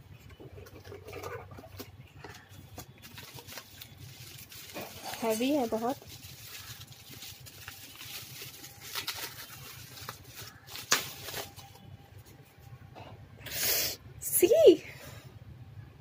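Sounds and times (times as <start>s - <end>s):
bubble wrap crinkling: 2.2s - 12.5s.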